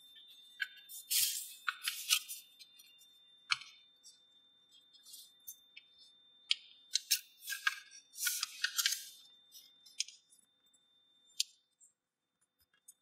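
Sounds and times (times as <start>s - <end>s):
paper crackling and rustling: 7.4s - 9.2s.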